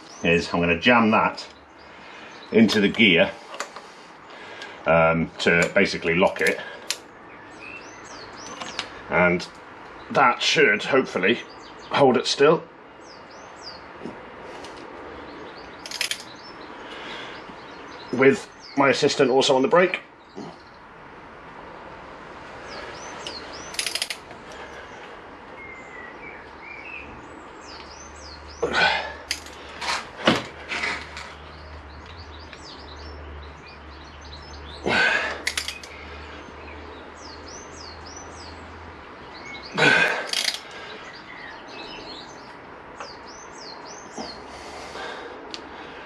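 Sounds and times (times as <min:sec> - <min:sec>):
small birds chirping: 0:00.0 - 0:46.0.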